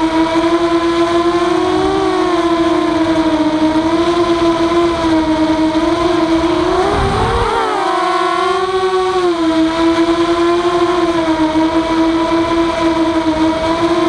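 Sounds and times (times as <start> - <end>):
quadcopter motors whining: 0.0 - 14.0
low rumble: 5.8 - 9.5.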